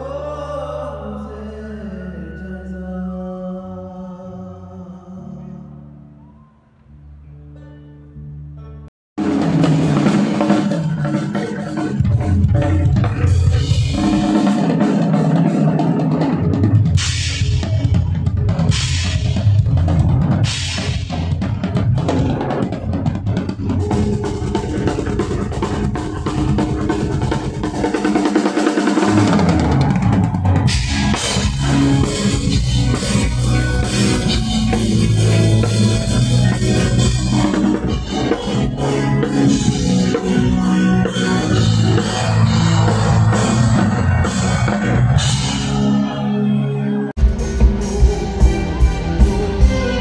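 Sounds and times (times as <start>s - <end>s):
bass line: 0.0s - 50.0s
drum kit playing: 9.2s - 46.2s, 47.2s - 50.0s.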